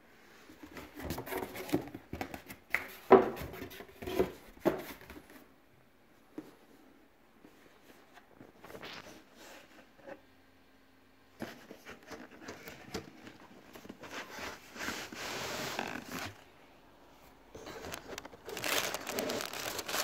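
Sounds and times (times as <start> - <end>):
cardboard boxes being handled: 17.6 - 20.0.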